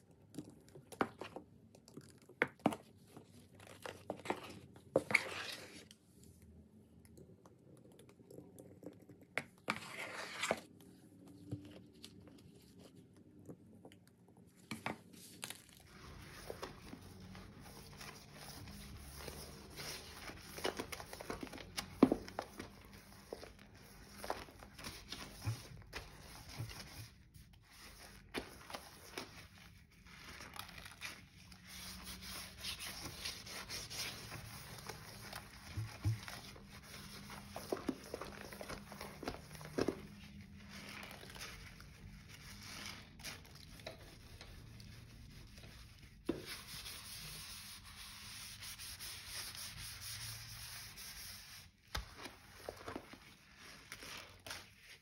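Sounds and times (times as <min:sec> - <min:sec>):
sponge scrubbing wet sink: 0:15.9 - 0:30.0, 0:31.6 - 0:55.0.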